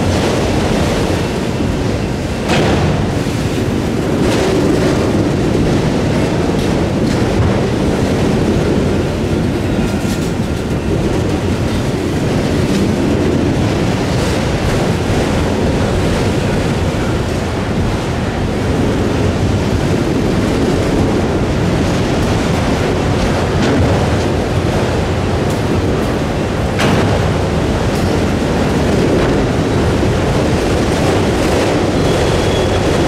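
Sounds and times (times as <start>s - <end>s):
train wheels rumbling on rails: 0.0s - 33.0s
wind on microphone: 0.0s - 33.0s.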